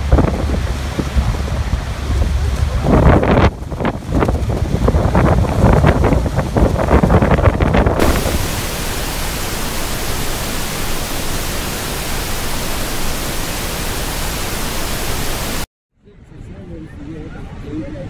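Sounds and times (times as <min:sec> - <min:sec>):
wind buffeting microphone: 0:00.0 - 0:15.6
waterfall roar: 0:08.0 - 0:15.7.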